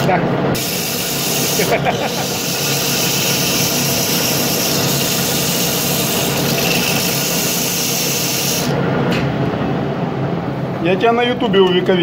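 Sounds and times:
abrasive paper hissing on metal: 0.6 - 8.8
lathe humming: 0.6 - 8.8.

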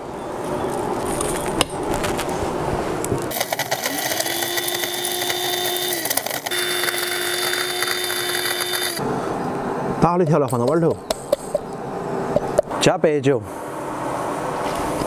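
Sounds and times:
blender grinding spices: 3.3 - 9.0.

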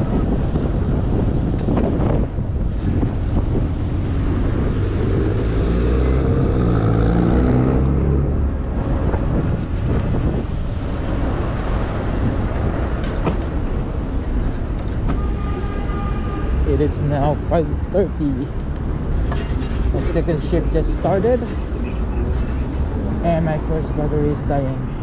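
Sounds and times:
wind buffeting the microphone: 0.0 - 15.2
vehicle engine passing: 3.7 - 13.0.

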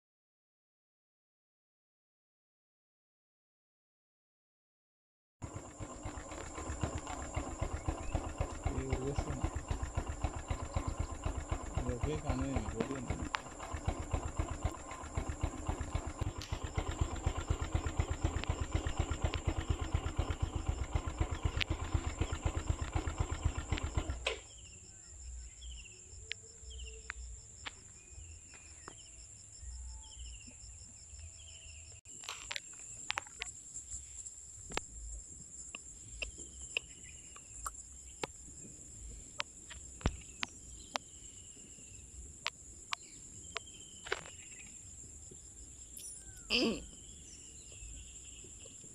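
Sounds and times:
vehicle engine idling: 5.4 - 30.4, 32.4 - 48.9
insect trill: 5.4 - 48.9
bird chirping: 5.8 - 32.0, 35.7 - 38.3, 42.9 - 48.9.

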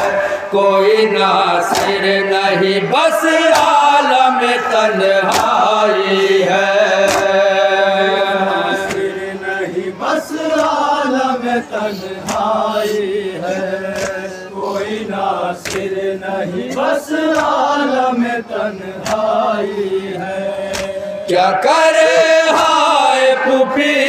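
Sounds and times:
men chanting in chorus: 0.0 - 24.0
chest slaps: 1.7 - 2.0, 20.7 - 21.0.

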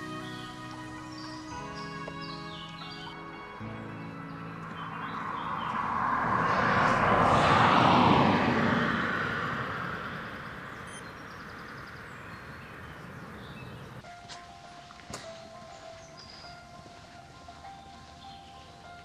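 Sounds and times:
vehicle passing by: 3.6 - 14.0.

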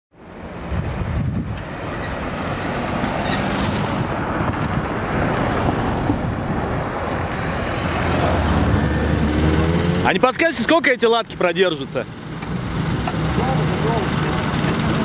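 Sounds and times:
traffic rumble: 0.2 - 15.0.

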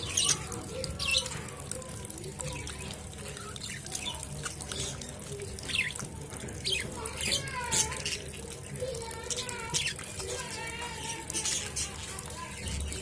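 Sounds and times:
tap water pouring and splashing: 0.0 - 13.0.

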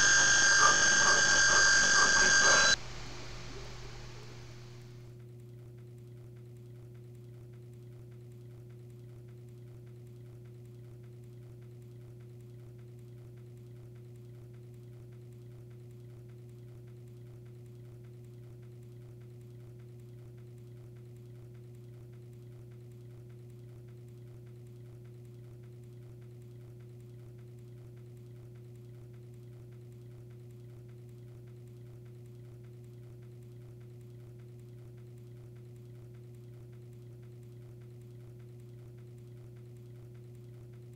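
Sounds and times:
high steady tone: 0.0 - 4.9
steady low hum: 0.0 - 5.0.

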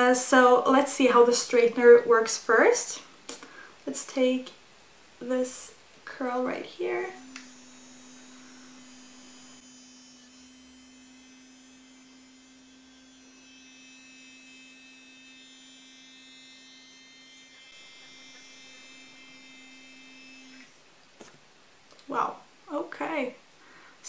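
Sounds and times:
hair straightener humming: 6.8 - 11.2, 16.3 - 21.3.

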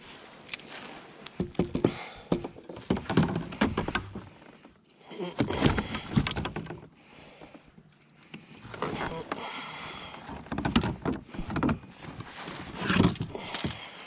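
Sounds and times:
knocks and thumps on kayak hull: 1.4 - 4.4, 5.4 - 6.9, 8.7 - 14.0.

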